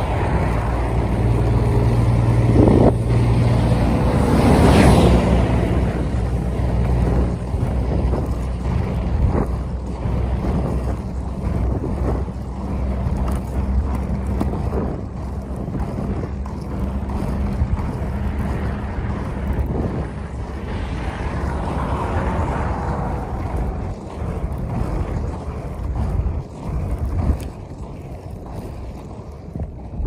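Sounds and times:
low engine hum: 0:00.0 - 0:30.0
road vehicles rumbling: 0:00.0 - 0:30.0
wind noise on microphone: 0:00.0 - 0:30.0.

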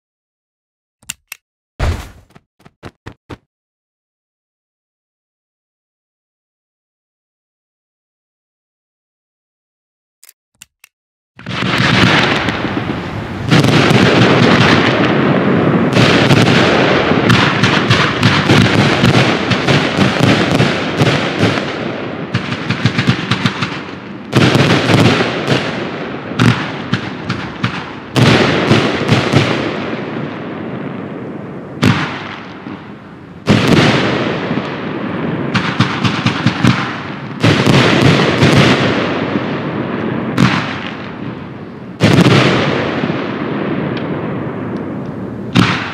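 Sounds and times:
fireworks launching and bursting: 0:01.8 - 0:03.5, 0:11.4 - 0:45.9
firework crackling: 0:11.4 - 0:29.7.

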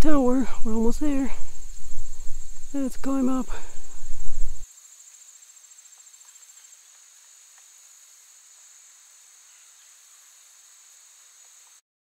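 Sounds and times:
insect trill: 0:00.0 - 0:11.8
faint ticks: 0:05.9 - 0:07.8.

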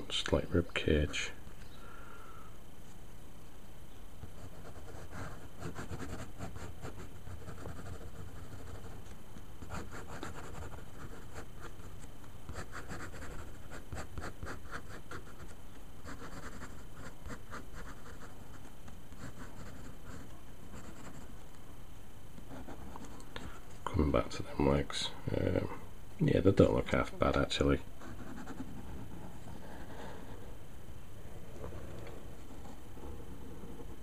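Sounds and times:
pen scratching on paper: 0:04.3 - 0:09.0, 0:09.6 - 0:11.9, 0:12.5 - 0:21.3, 0:28.0 - 0:30.4.

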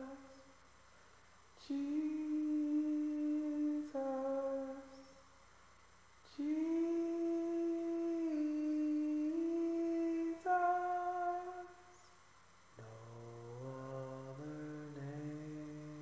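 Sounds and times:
person humming: 0:00.0 - 0:00.4, 0:01.6 - 0:05.1, 0:06.3 - 0:11.9, 0:12.8 - 0:16.0.

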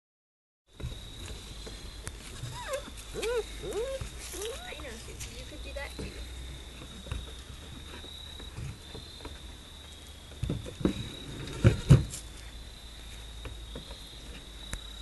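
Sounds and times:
insects trilling: 0:00.7 - 0:15.0
goat hooves on wooden roof: 0:00.8 - 0:09.6.

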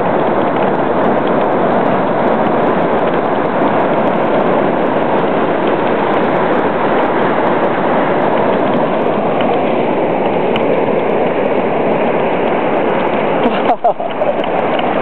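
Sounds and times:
surf breaking on beach: 0:00.0 - 0:15.0.

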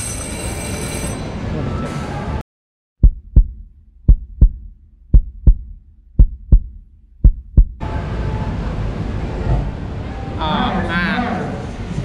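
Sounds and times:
outdoor noise: 0:00.0 - 0:02.4, 0:03.0 - 0:12.0
heartbeat thumps: 0:03.0 - 0:07.8.

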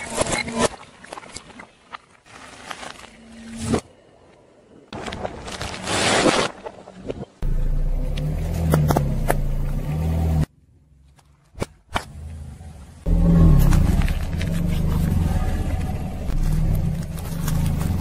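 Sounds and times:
car engine running: 0:07.4 - 0:10.4.

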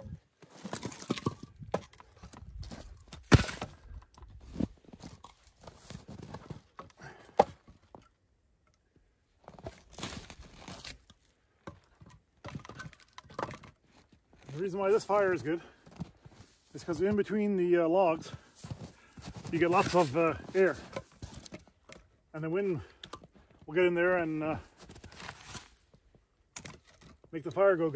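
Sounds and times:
crunching and rustling: 0:00.0 - 0:06.8, 0:09.4 - 0:11.3, 0:18.3 - 0:21.8, 0:24.7 - 0:27.3.

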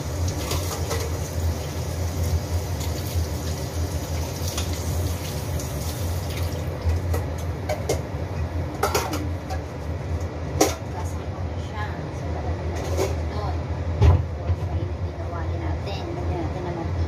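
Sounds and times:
water running from a tap: 0:00.0 - 0:07.1.

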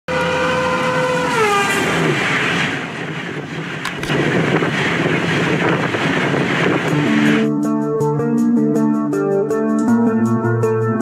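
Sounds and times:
train horn: 0:00.1 - 0:02.2
rumble of passing train: 0:00.1 - 0:07.5
sharp clicks: 0:03.8 - 0:04.2.

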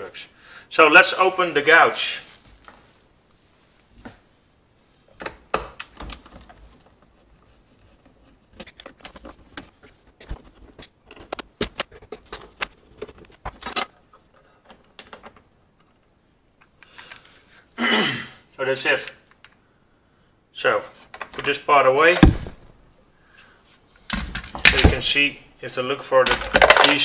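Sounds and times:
plastic parts clicking and rattling: 0:05.2 - 0:17.4, 0:26.2 - 0:27.0.

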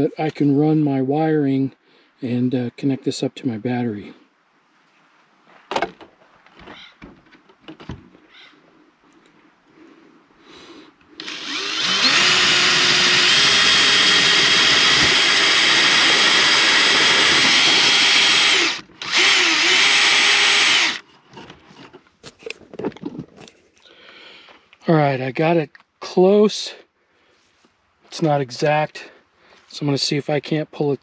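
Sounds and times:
power drill boring wood: 0:11.2 - 0:21.1.

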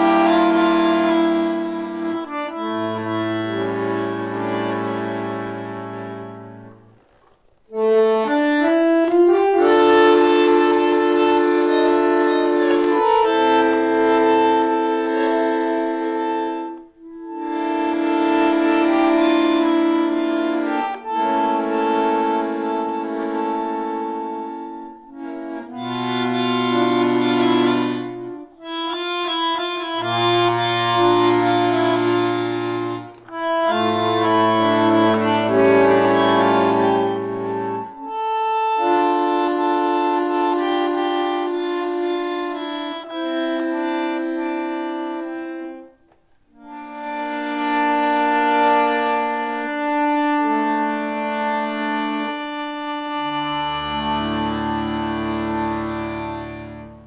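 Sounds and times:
bandoneon playing chords: 0:00.0 - 0:57.0
low bass notes: 0:25.2 - 0:38.2.

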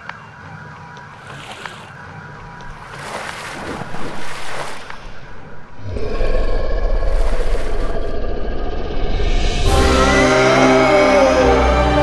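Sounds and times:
liquid spraying and splashing: 0:01.2 - 0:01.9, 0:02.8 - 0:05.5.

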